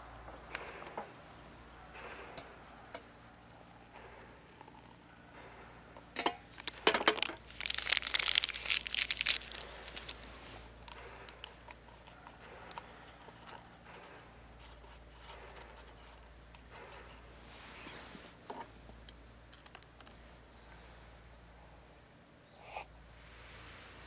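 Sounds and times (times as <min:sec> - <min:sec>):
packet crinkling and tearing: 0:06.5 - 0:10.4.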